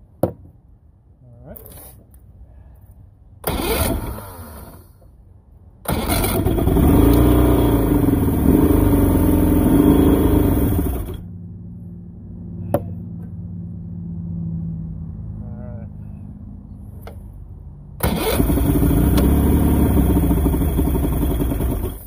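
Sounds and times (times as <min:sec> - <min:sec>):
outboard motor cranking: 0:03.4 - 0:04.8, 0:05.9 - 0:11.2, 0:18.0 - 0:22.0
outboard motor running unevenly: 0:07.4 - 0:11.2.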